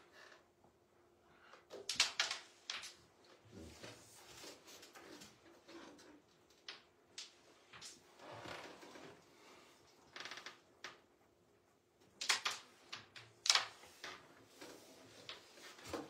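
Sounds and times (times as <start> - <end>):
carrom pieces clacking: 12.2 - 13.8.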